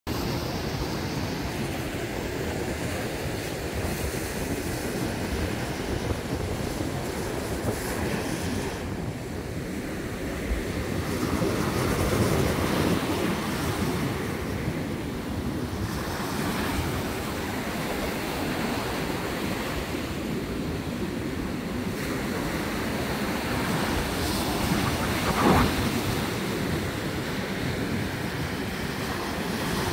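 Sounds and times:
wind rumbling on microphone: 0.1s - 29.9s
small surf breaking on sand: 22.1s - 27.4s.

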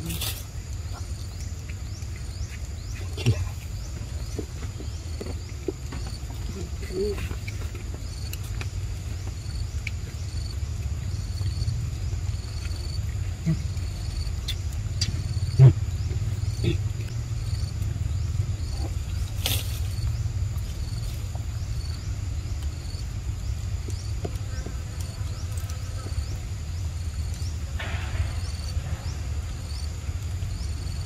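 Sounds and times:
steady low rumble: 0.0s - 31.0s
loud thump: 27.8s - 28.6s.

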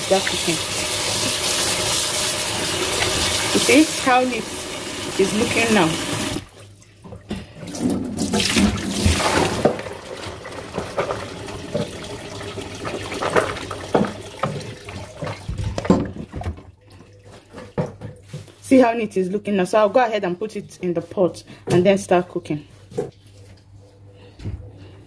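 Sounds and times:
wet beans stirred in colander: 0.0s - 6.8s
water splashing into steel sink: 7.7s - 16.5s.

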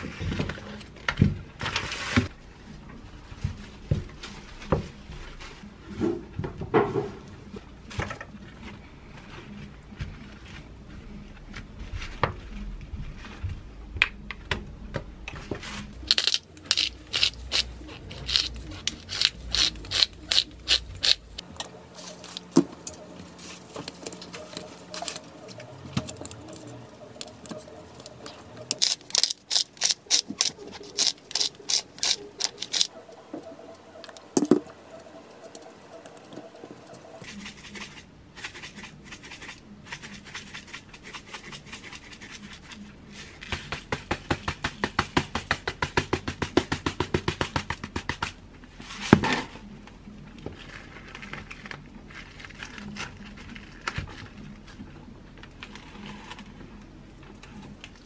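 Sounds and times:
spice jars rattling: 16.0s - 21.4s, 27.2s - 32.9s.

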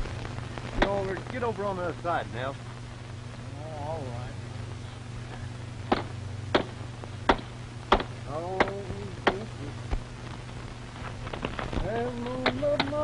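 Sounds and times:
steady low hum: 0.0s - 13.0s
sharp knocks: 5.9s - 9.5s.

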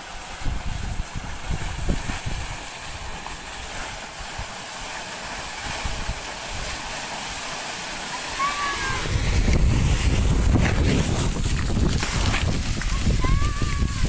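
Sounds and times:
water and air gushing from well: 0.0s - 14.0s
wind buffeting microphone: 0.3s - 3.2s, 5.6s - 6.8s, 8.4s - 14.0s.

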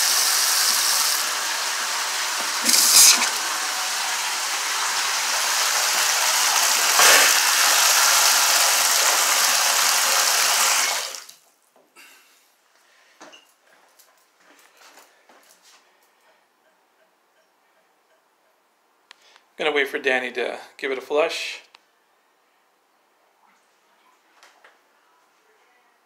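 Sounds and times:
water running from faucet: 0.0s - 11.4s
water spraying from bathtub spout: 0.0s - 11.4s.

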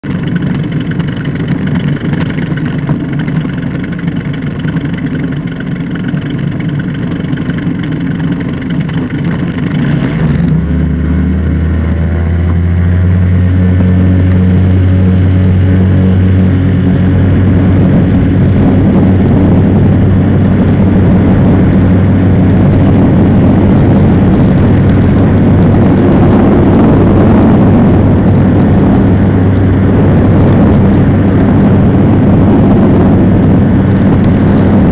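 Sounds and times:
ultralight engine and propeller: 0.0s - 34.9s.

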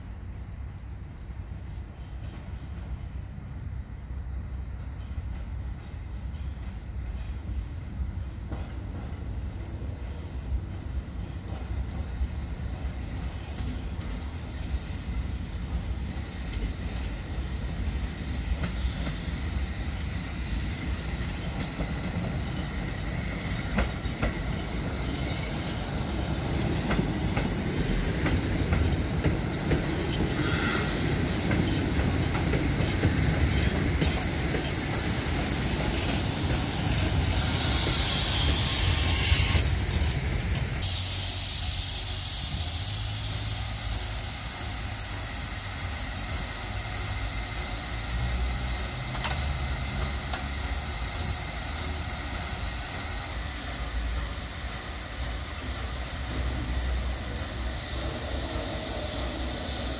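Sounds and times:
steam locomotive rumbling: 0.0s - 59.9s
loud steam hiss: 7.2s - 59.9s
wheels clicking on track: 20.8s - 40.9s, 46.3s - 52.7s.

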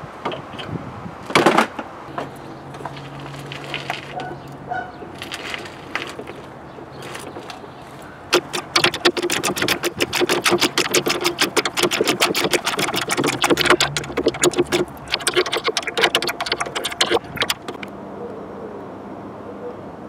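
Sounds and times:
socket ratchet clicking rapidly: 8.4s - 17.9s.

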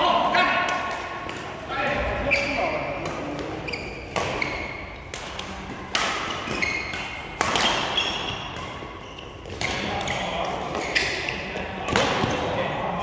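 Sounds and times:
racket hitting shuttlecock: 3.0s - 11.3s, 11.9s - 12.4s
sneaker squeaks on court floor: 3.4s - 5.0s, 6.1s - 12.4s.

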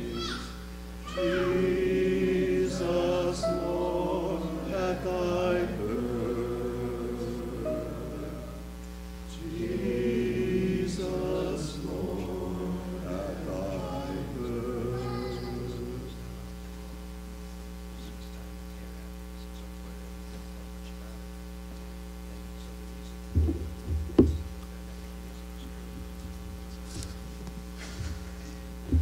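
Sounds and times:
voices singing: 0.0s - 16.6s
electrical hum: 0.0s - 29.0s
thumps on lectern microphone: 23.3s - 24.6s.

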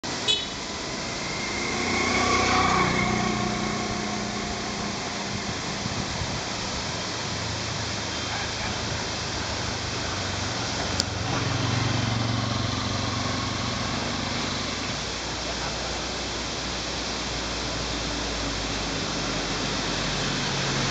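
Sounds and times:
steady traffic rushing: 0.0s - 20.9s
vehicle engine passing: 0.6s - 7.8s, 9.8s - 15.1s.

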